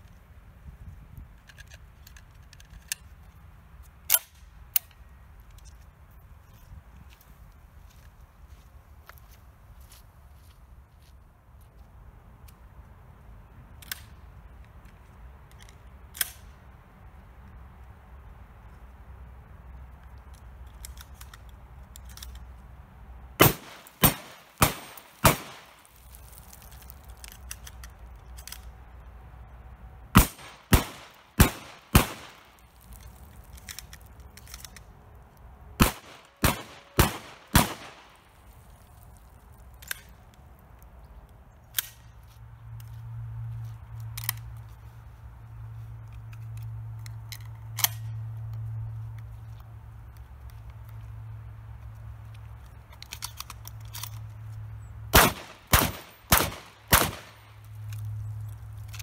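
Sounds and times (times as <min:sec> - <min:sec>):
gun handling clicks: 0:01.3 - 0:05.9, 0:13.8 - 0:16.6, 0:19.9 - 0:22.6, 0:23.4 - 0:28.8, 0:30.2 - 0:43.0, 0:44.0 - 0:44.8, 0:46.0 - 0:51.1, 0:51.8 - 0:54.6, 0:55.2 - 0:59.0
shotgun shots: 0:23.4 - 0:25.8, 0:30.2 - 0:32.6, 0:35.8 - 0:38.2, 0:55.1 - 0:57.5.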